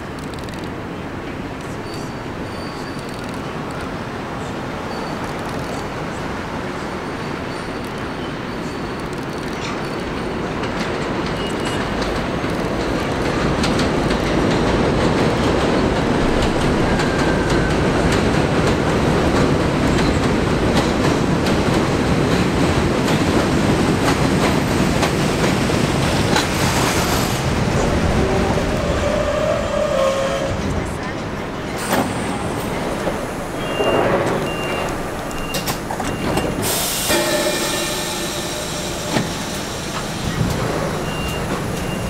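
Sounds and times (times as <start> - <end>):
faint brake squeal: 1.8 - 3.2, 4.9 - 5.9
train wheels clattering over rail joints: 9.0 - 27.7.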